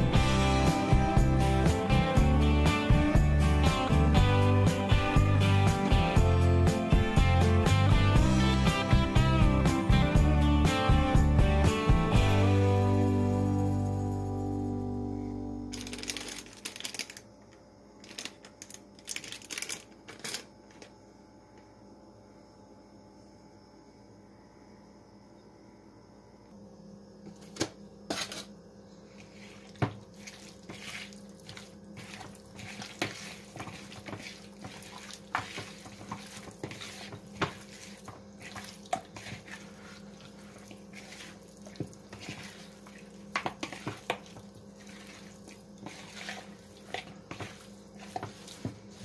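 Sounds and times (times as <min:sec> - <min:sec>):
meat squelching and slapping: 0:29.6 - 0:49.0.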